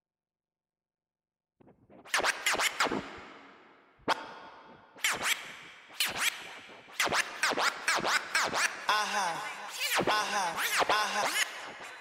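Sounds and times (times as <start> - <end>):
dj scratching with reverb: 1.9 - 3.2.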